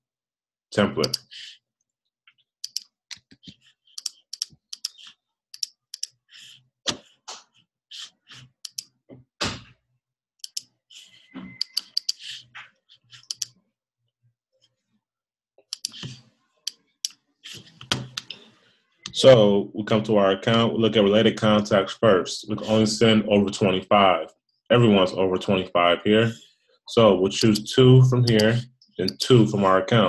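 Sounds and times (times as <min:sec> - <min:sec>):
mouse and keyboard clicks: 0:01.0 - 0:01.3, 0:02.6 - 0:06.2, 0:08.6 - 0:08.9, 0:10.4 - 0:10.7, 0:11.5 - 0:12.3, 0:13.1 - 0:13.5, 0:15.7 - 0:16.2, 0:27.4 - 0:27.6.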